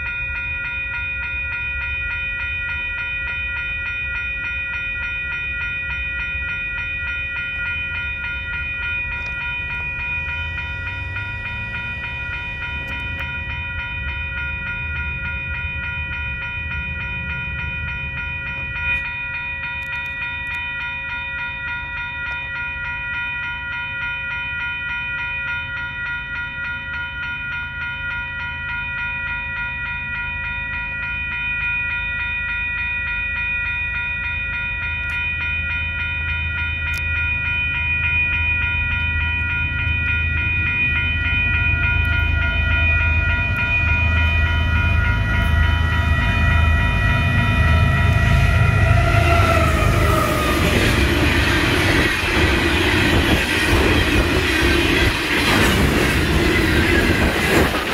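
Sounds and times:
train rumble: 0.0s - 23.0s, 35.0s - 57.9s
crossing warning bell ringing: 0.0s - 57.9s.

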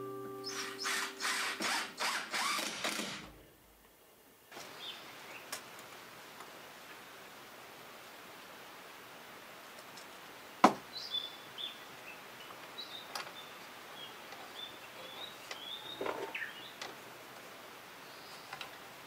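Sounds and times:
high thin bird calls: 0.4s - 2.6s
tape measure snapping back: 0.5s - 3.3s.

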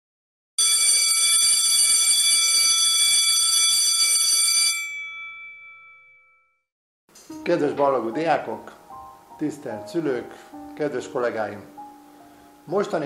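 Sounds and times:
electric bell ringing: 0.6s - 6.6s.

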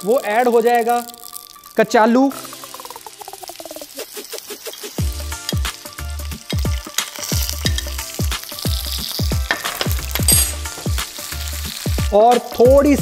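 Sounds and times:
food sizzling in oil: 0.0s - 13.0s
background music with bass beat: 4.9s - 13.0s.

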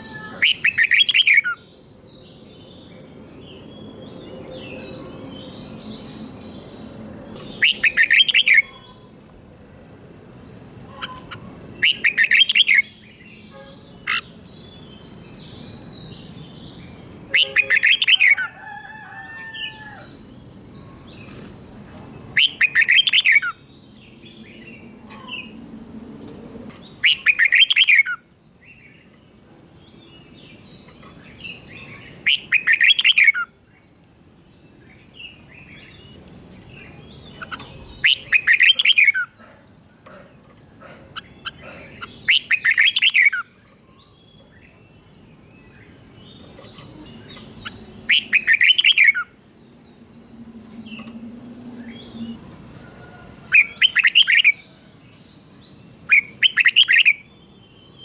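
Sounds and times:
bird warbling song phrases: 0.0s - 1.8s, 7.3s - 9.3s, 10.8s - 20.2s, 22.3s - 25.6s, 26.8s - 58.0s
faint bird chirping: 26.9s - 58.0s.

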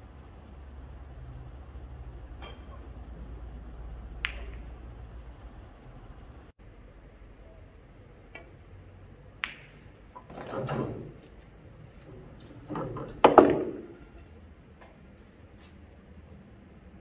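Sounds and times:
ball striking ball: 9.4s - 9.7s, 13.2s - 14.0s
cue clicking on ball: 9.4s - 11.3s, 12.8s - 14.0s
ball rolling inside table: 12.0s - 14.4s.

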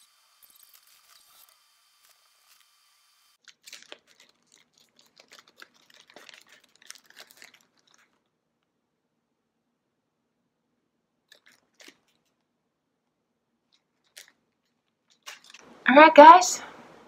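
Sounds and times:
plastic snack packet crinkling: 3.4s - 8.4s, 11.3s - 12.5s, 13.7s - 15.7s.

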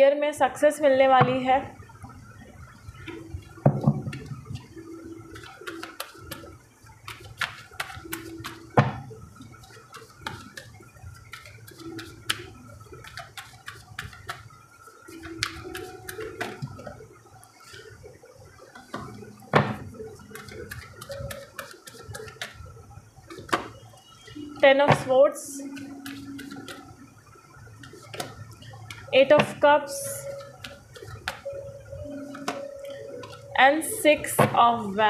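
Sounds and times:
cards being shuffled: 5.3s - 6.5s, 7.1s - 8.7s, 9.6s - 14.5s, 15.2s - 16.7s, 20.3s - 22.6s, 25.6s - 26.9s, 30.2s - 31.4s.

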